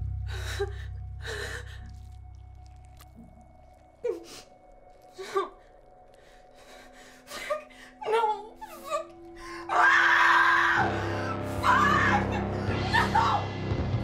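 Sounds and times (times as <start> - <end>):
low music drone: 0.0 - 14.0
woman gasping and sobbing: 0.1 - 2.2, 4.0 - 9.7, 10.8 - 11.6, 12.2 - 13.2
woman screaming: 9.7 - 10.9, 11.5 - 13.5.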